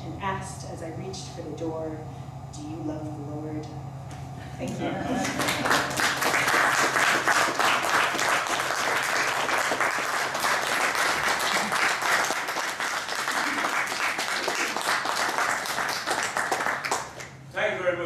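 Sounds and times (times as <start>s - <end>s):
audience applauding: 5.2s - 17.4s.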